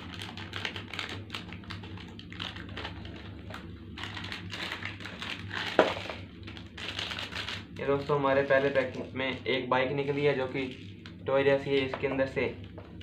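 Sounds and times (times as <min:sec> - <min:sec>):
plastic wrapper crinkling: 0:00.0 - 0:09.1, 0:10.5 - 0:11.2
low steady hum: 0:00.0 - 0:13.0.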